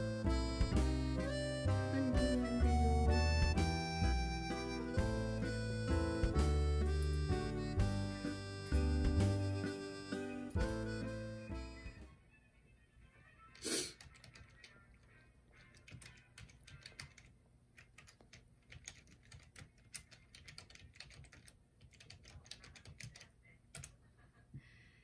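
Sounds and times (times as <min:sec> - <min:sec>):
typing on computer keyboard: 0:14.0 - 0:14.8, 0:15.6 - 0:24.0.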